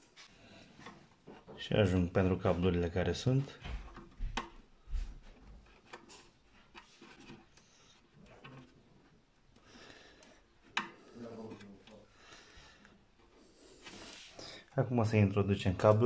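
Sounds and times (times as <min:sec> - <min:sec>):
rubber grommets rubbing and clicking: 0:02.5 - 0:15.1.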